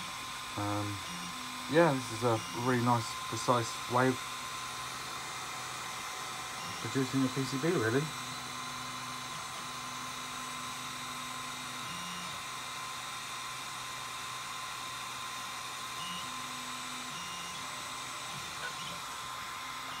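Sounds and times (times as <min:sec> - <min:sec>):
fan hiss: 0:00.0 - 0:11.7
thin high whine: 0:00.0 - 0:12.4
stepper motors humming: 0:00.0 - 0:20.0.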